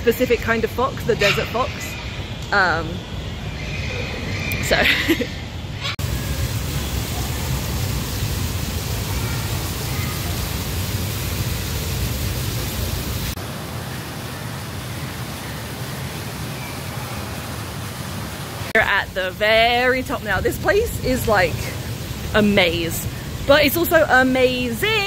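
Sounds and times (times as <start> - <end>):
waterfall splashing into pond: 6.0 - 24.8.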